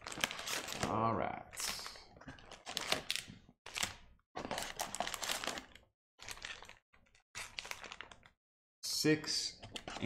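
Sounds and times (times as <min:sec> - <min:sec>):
foil wrappers crinkling: 0:00.0 - 0:01.1, 0:01.7 - 0:08.3.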